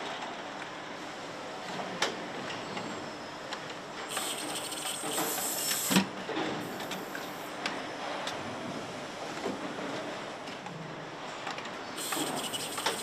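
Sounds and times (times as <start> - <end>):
compressed air hissing: 4.1 - 6.0, 6.6 - 7.5, 12.0 - 13.0.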